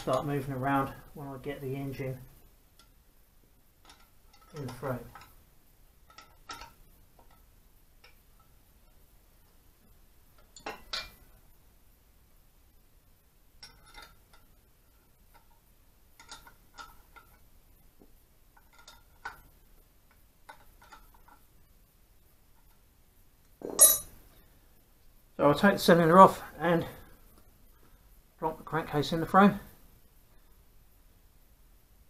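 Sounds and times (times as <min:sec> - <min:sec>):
sharp metal clank: 0:23.6 - 0:24.2.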